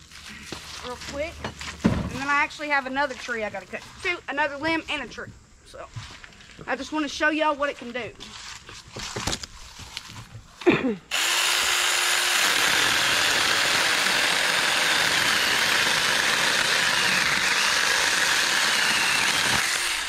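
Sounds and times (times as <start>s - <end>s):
electric chainsaw cutting tree limb: 11.1s - 20.0s.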